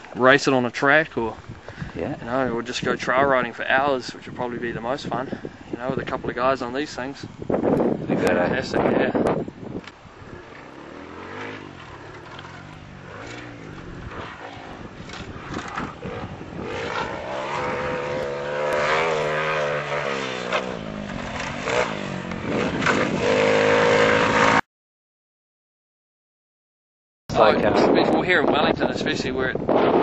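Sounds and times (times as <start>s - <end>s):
motorbike engine revving: 7.7s - 24.6s.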